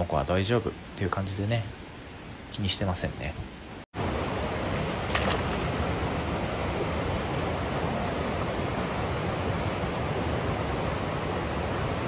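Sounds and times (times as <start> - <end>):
flowing water: 4.0 - 12.0
splash of swimming monkeys: 5.0 - 5.8.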